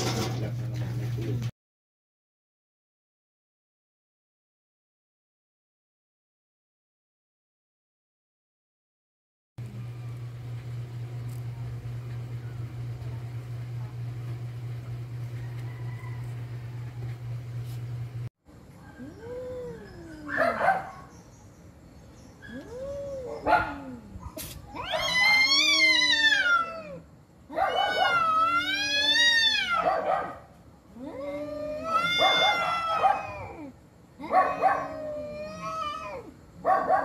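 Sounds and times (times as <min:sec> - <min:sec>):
cats yowling: 0:18.9 - 0:20.9, 0:22.4 - 0:30.1, 0:30.9 - 0:37.0.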